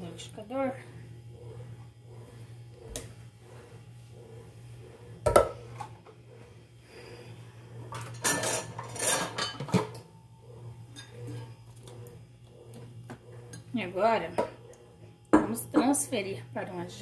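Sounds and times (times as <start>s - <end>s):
kitchenware clattering and scraping: 7.9s - 10.0s, 10.9s - 11.5s.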